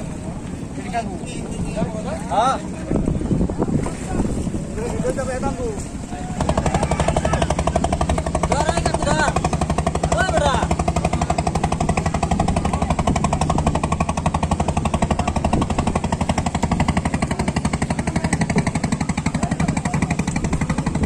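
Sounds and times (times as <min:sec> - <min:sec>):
engine idling: 0:06.0 - 0:21.0.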